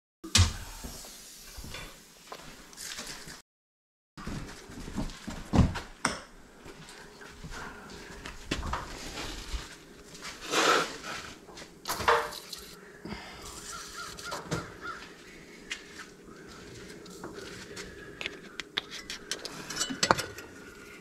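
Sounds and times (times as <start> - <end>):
crow cawing: 12.8 - 15.6.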